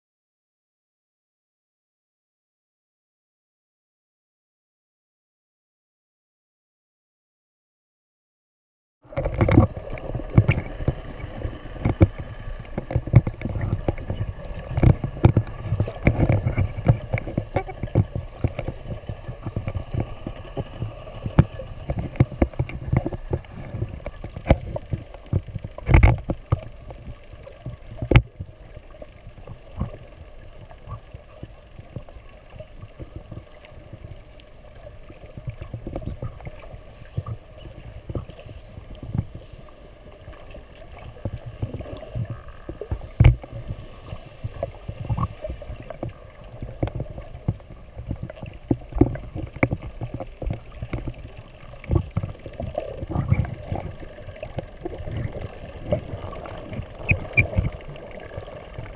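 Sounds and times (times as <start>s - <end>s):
water sloshing: 9.1s - 28.4s
dolphins whistling underwater: 28.2s - 50.1s, 50.7s - 58.9s.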